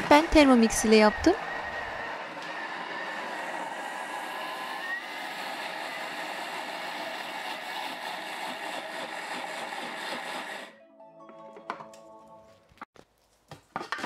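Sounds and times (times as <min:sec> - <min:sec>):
food processor motor whining: 0:00.0 - 0:10.7.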